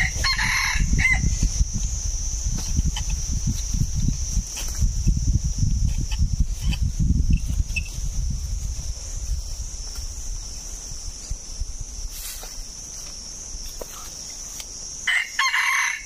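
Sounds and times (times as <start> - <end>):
rooster crowing: 0.0 - 1.4, 15.0 - 16.0
high-pitched insect drone: 0.0 - 16.0.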